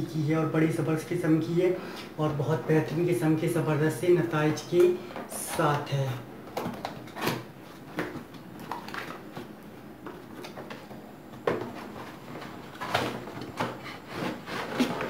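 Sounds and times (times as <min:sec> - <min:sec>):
cardboard flaps scraping and rustling: 0:10.3 - 0:15.0.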